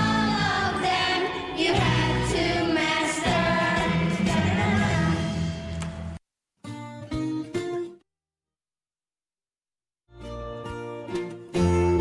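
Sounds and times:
group of voices singing: 0.0 - 5.7
instrumental backing with bass: 10.1 - 12.0.

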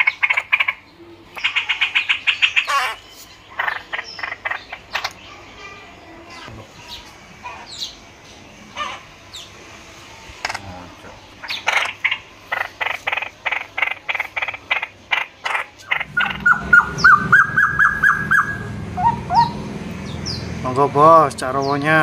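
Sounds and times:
songbird harsh calls: 0.0 - 8.0, 10.4 - 20.7
low rumble: 16.0 - 21.5.

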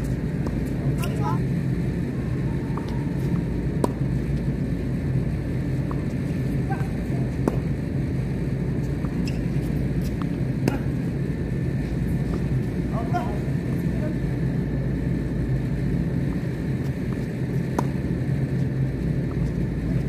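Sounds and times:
steady low rumble: 0.0 - 20.0
tennis ball struck by rackets: 2.7 - 4.1, 7.3 - 7.8, 8.9 - 11.0, 17.1 - 18.0.

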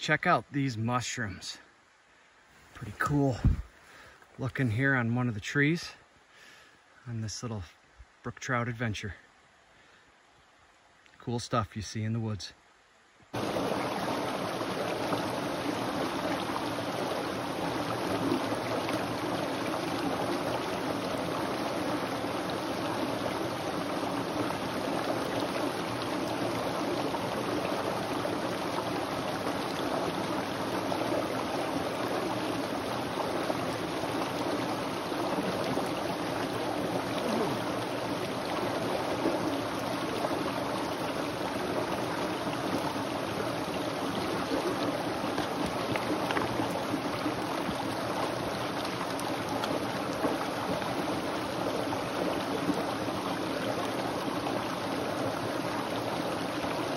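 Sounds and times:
brook water splashing over rocks: 13.3 - 56.9.

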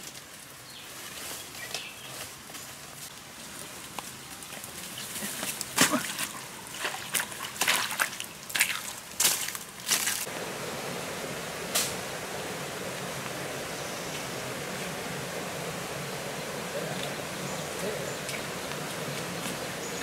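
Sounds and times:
footsteps through undergrowth: 0.0 - 10.4
stream water rushing: 5.6 - 20.0.

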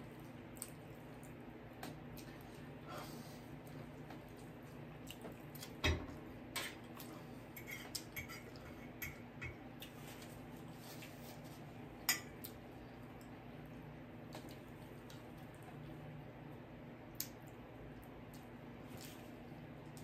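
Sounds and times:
cutlery scraping plates: 7.6 - 9.2.

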